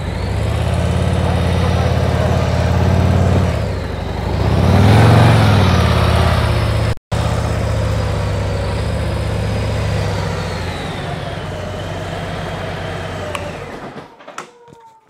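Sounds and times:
motorcycle engine running: 0.0 - 13.9.

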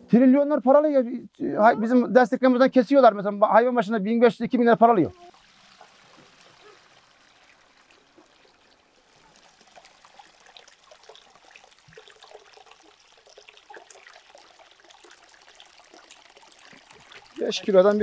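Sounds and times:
liquid trickling and dripping: 5.1 - 18.0.

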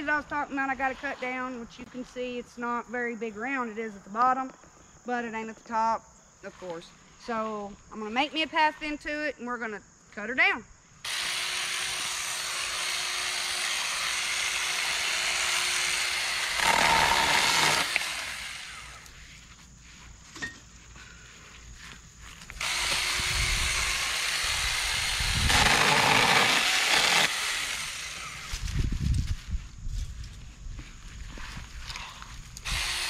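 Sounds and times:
electric chainsaw cutting branches: 11.0 - 19.1, 22.5 - 28.7, 32.6 - 33.0.

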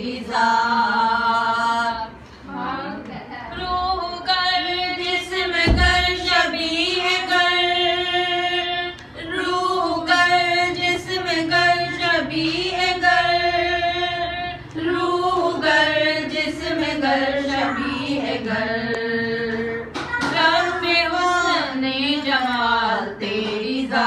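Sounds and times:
woman singing unaccompanied: 0.0 - 24.0
low thump: 5.6 - 6.3.

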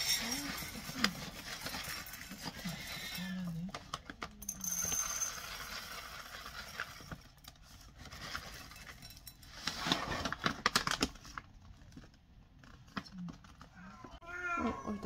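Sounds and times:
kibble pouring into a bowl: 4.4 - 7.4.

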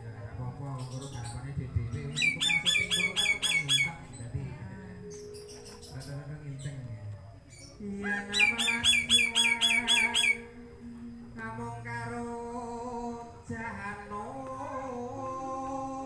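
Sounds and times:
music with singing: 0.0 - 16.0
myna calling: 0.7 - 10.9.

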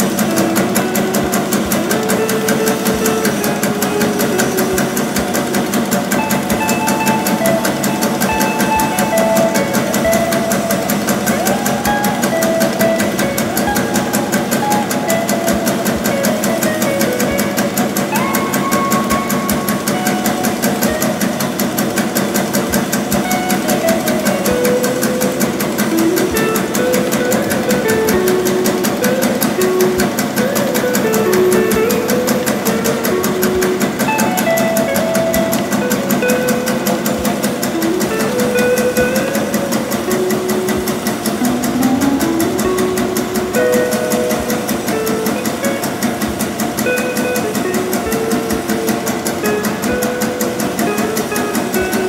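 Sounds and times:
machine clattering: 0.0 - 52.0
background music: 23.3 - 47.0.

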